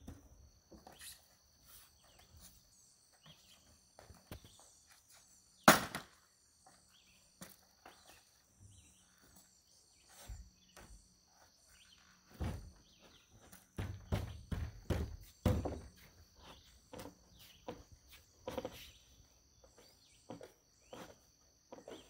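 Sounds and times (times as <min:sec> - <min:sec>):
insects chirring: 0:00.0 - 0:22.0
lumber knocking and thumping: 0:12.3 - 0:16.0.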